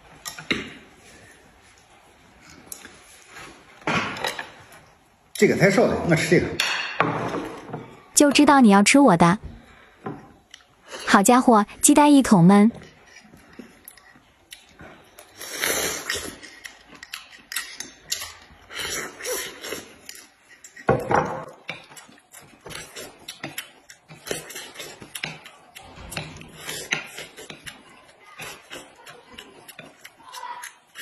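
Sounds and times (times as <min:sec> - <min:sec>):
chewing and biting corn: 0:13.1 - 0:20.9, 0:21.7 - 0:31.0.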